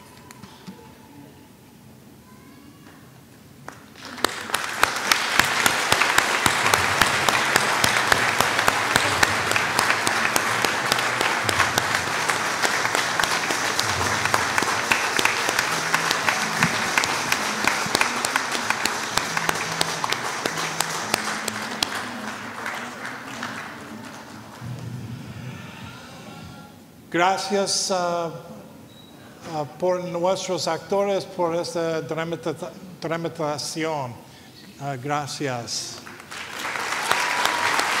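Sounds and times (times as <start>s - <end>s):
crowd clapping: 3.6s - 25.4s, 36.0s - 38.0s.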